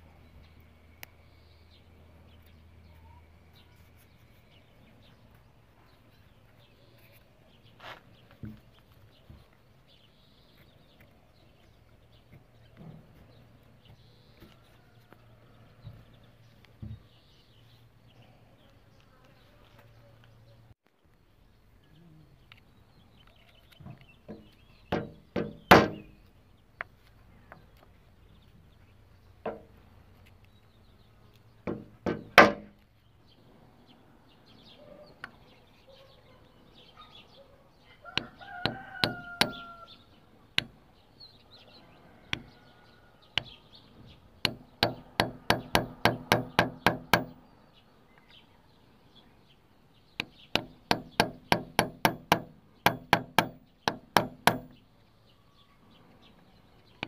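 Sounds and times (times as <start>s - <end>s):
hammer tapping on metal punch: 24.3s - 26.2s, 31.7s - 32.7s, 38.2s - 39.7s, 44.4s - 47.4s, 50.2s - 54.8s
louder single knocks: 24.3s - 26.2s, 31.7s - 32.8s, 44.5s - 47.4s, 50.2s - 54.8s.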